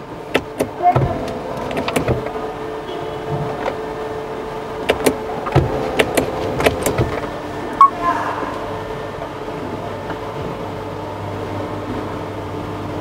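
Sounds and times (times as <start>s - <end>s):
ignition button click: 0.3s - 2.4s, 4.8s - 8.0s
sharp clicks: 4.8s - 7.2s.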